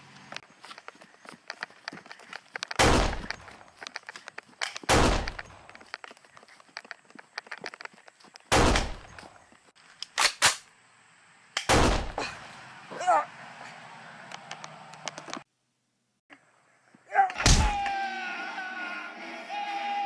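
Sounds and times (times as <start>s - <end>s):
light footsteps: 0.0s - 9.7s
pistol gunshots: 2.8s - 3.4s, 4.9s - 5.6s, 8.5s - 9.2s, 11.7s - 12.2s.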